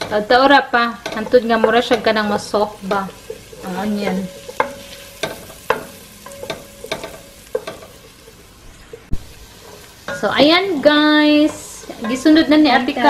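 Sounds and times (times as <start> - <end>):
wooden spoon knocking on metal pot: 0.0 - 8.1
onions sizzling in a pot: 0.0 - 13.0.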